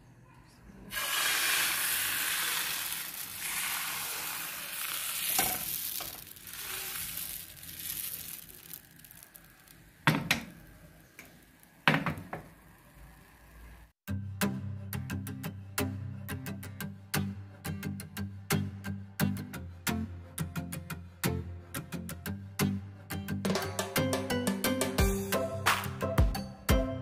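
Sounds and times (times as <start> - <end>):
batter sizzling in a pan: 0.9 - 14.0.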